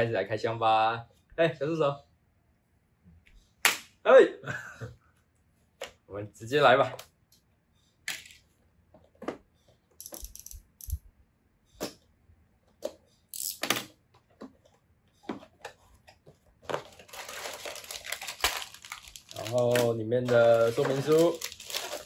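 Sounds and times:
plastic bags rustling: 16.6s - 22.0s
loose parts rattling in box: 16.7s - 22.0s.

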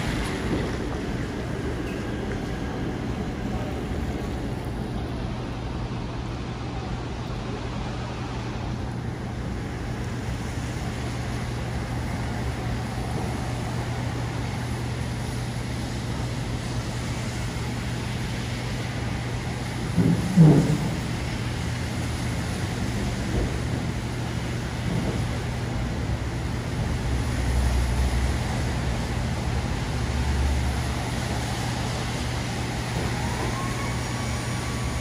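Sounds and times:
traffic on wet pavement: 0.0s - 35.0s.

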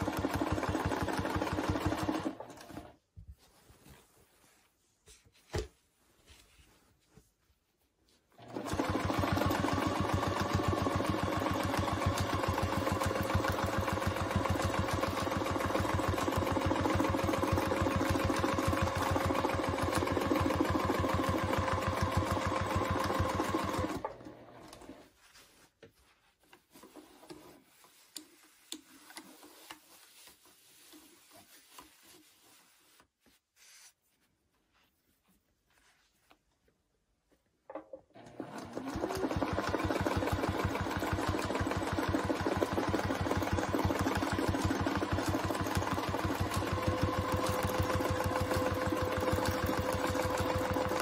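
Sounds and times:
sewing machine stitching: 0.0s - 3.0s, 8.4s - 25.0s, 37.7s - 51.0s.

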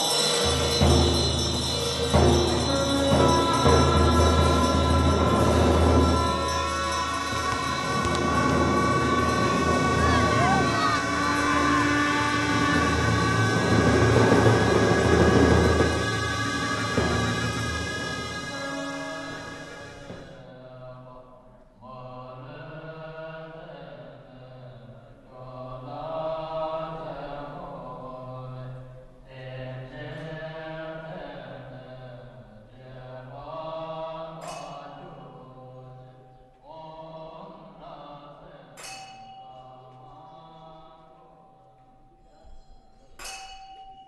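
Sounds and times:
small bell ringing: 0.0s - 12.0s, 38.8s - 40.3s, 42.0s - 44.0s.

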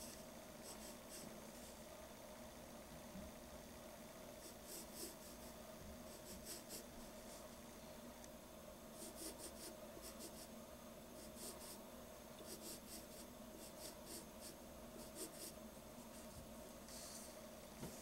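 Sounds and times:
pencil scratching on paper: 4.4s - 5.5s, 6.1s - 7.4s, 9.0s - 10.5s, 11.2s - 11.8s, 12.4s - 17.2s.

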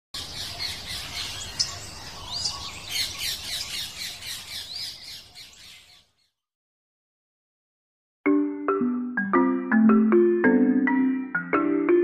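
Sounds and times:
small birds chirping and squawking: 0.2s - 6.4s.

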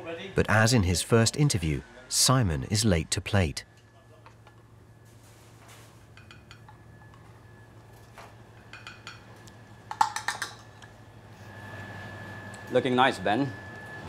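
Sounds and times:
steady low hum: 0.0s - 14.0s
utensils and crockery clinking: 6.1s - 11.0s.

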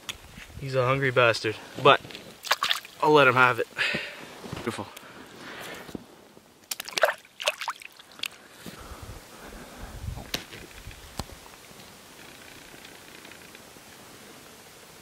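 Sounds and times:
water sloshing and splashing: 2.4s - 3.1s, 6.7s - 8.4s.

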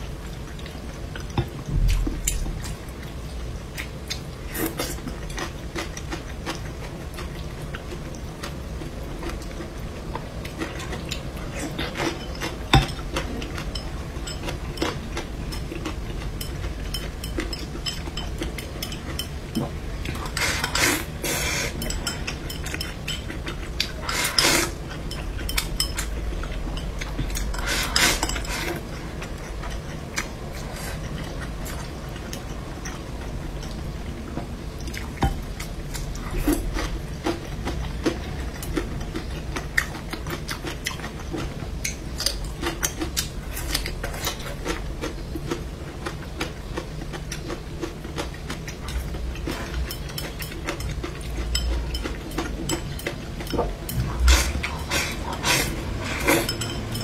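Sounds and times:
person chewing: 0.4s - 33.8s, 34.8s - 57.0s.

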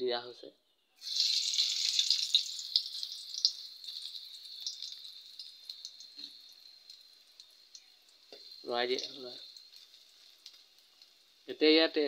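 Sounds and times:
onions sizzling in hot oil: 1.0s - 12.0s
small oil pops: 4.6s - 11.2s.

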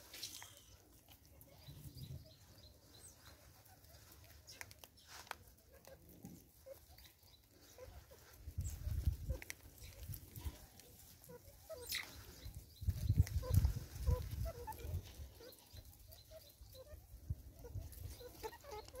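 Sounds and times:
mongoose chirping: 11.2s - 19.0s.

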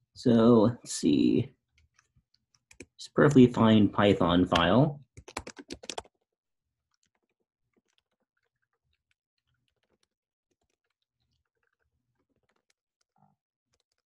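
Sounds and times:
faint keyboard keystrokes: 4.5s - 6.1s.

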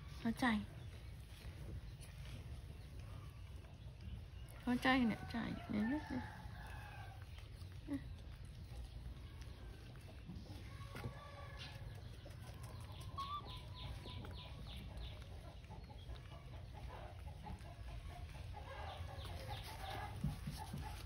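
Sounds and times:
chickens clucking: 0.0s - 21.0s
high chirping calls: 12.6s - 16.1s.

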